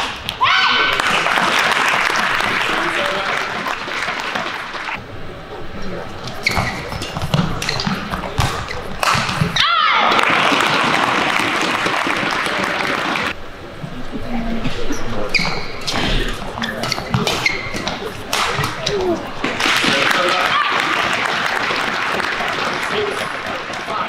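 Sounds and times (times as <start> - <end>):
crowd applauding and cheering: 0.7 - 5.0, 9.8 - 13.4, 19.4 - 24.0
shoes squeaking on court: 6.1 - 9.6, 14.7 - 24.0
racket hitting shuttlecock: 6.4 - 9.7, 16.8 - 21.7.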